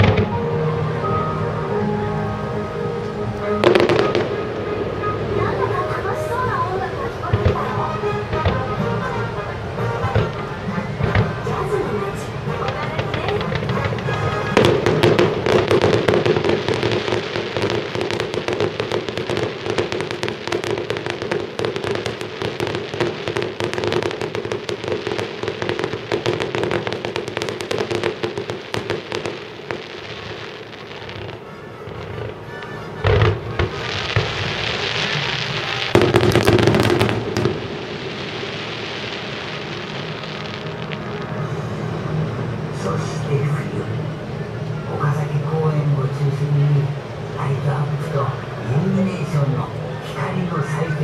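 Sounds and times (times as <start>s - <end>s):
fireworks shells bursting: 12.6s - 41.5s
loud firework bang: 32.1s - 41.5s.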